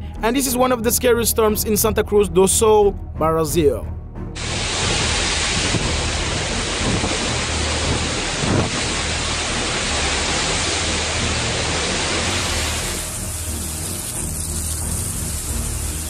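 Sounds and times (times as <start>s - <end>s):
strong wind: 4.4s - 12.9s
heavy rain: 4.4s - 16.0s.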